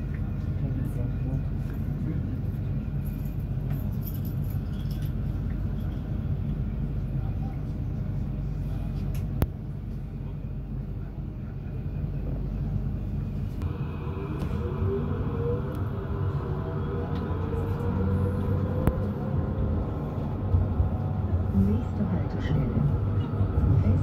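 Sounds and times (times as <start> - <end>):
tram low hum: 0.0 - 24.0
tram motors whining: 12.2 - 24.0.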